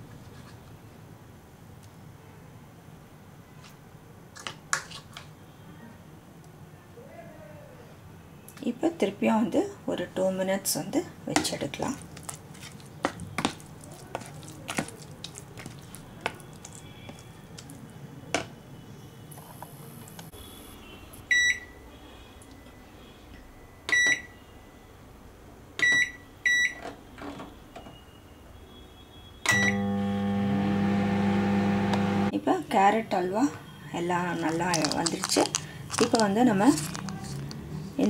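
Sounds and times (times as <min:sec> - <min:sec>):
keypad beeps: 0:21.3 - 0:21.7, 0:23.9 - 0:24.3, 0:25.8 - 0:26.8
microwave oven humming: 0:29.5 - 0:32.3.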